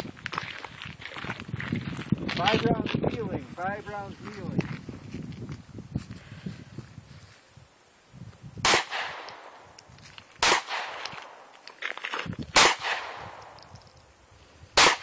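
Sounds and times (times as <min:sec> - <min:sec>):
handgun shots: 0:08.7 - 0:09.5, 0:10.4 - 0:11.4, 0:12.6 - 0:13.5, 0:14.8 - 0:15.0.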